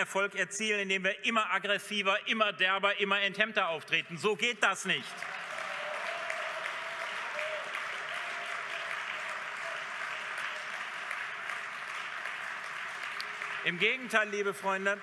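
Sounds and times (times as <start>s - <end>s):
audience applause: 5.0s - 15.0s.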